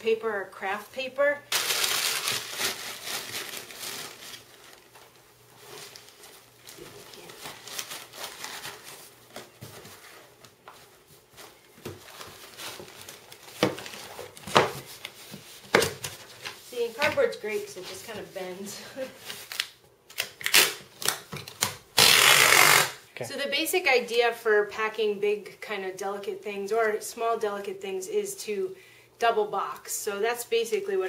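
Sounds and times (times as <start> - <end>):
newspaper crumpling: 1.5 - 18.4.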